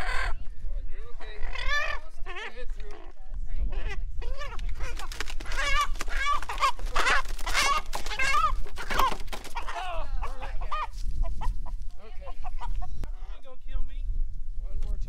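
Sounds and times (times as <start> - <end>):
chicken squawking: 0.0 - 0.4, 1.2 - 2.6, 3.7 - 13.0
wings flapping: 4.2 - 11.8.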